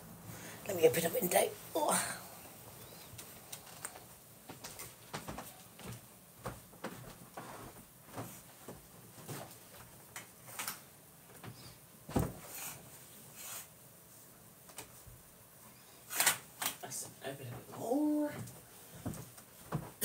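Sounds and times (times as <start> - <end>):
heavy thump: 12.1 - 12.4.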